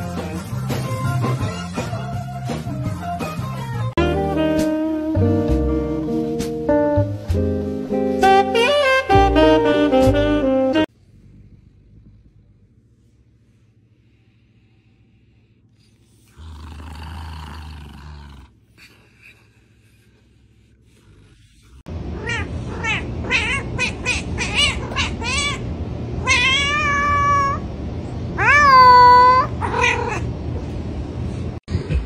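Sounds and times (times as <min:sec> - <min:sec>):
cat meowing: 0:22.2 - 0:25.6, 0:26.2 - 0:27.6, 0:28.4 - 0:30.3.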